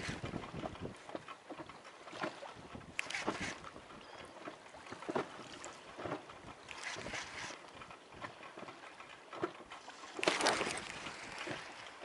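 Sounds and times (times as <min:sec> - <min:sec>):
gusty wind buffeting microphone: 0:00.0 - 0:01.1
water slapping against boat: 0:00.0 - 0:12.0.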